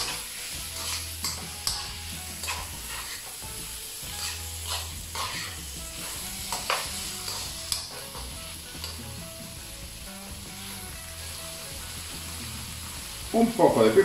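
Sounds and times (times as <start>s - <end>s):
spoon scraping and knocking pan: 0.0s - 9.2s
food sizzling in a frying pan: 0.0s - 14.0s.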